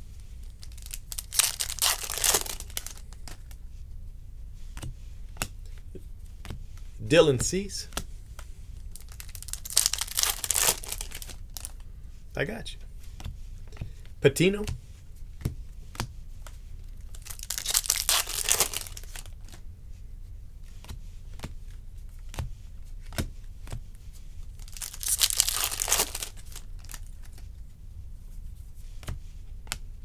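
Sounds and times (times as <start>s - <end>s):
cards crinkling and rustling: 0.3s - 3.6s, 8.8s - 11.8s, 15.9s - 19.6s, 24.5s - 27.6s.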